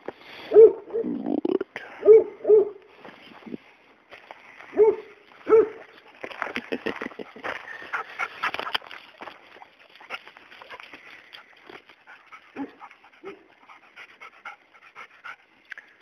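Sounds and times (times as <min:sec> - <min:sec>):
dog panting: 0:05.9 - 0:16.0.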